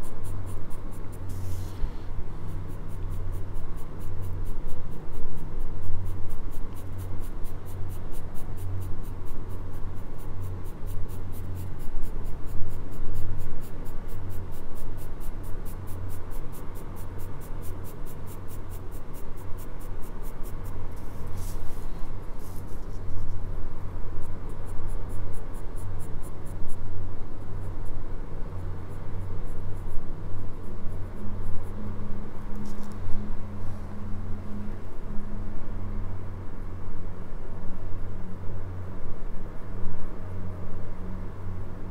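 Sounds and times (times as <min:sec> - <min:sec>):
pencil shading on paper: 0:00.0 - 0:23.3.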